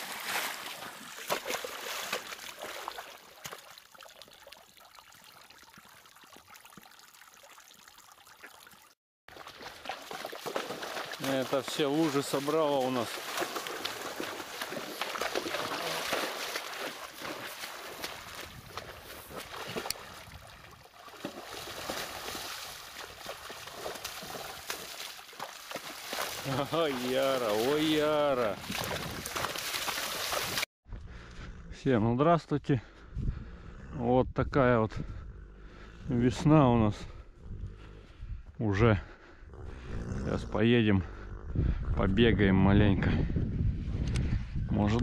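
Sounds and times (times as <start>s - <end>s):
hooves splashing in puddle: 0.0s - 30.7s
faint trickle of water: 1.9s - 11.2s.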